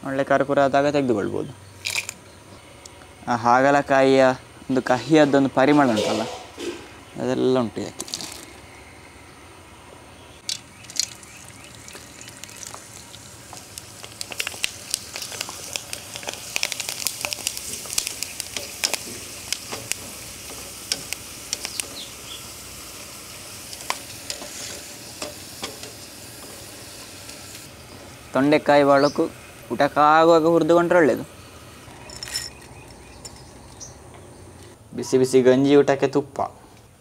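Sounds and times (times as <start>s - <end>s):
slices deep-frying in hot oil: 10.4s - 32.0s.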